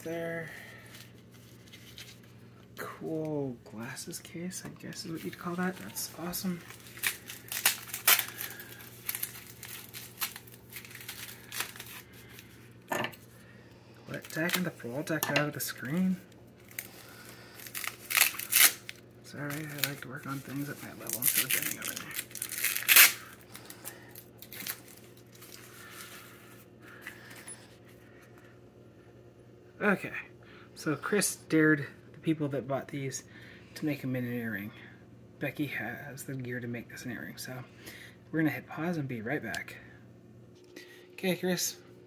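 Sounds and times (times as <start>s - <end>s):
packaging crinkling and rustling: 4.8s - 12.6s, 14.1s - 27.5s
sharp packaging clicks: 6.7s - 12.1s, 17.6s - 20.1s, 21.0s - 25.5s.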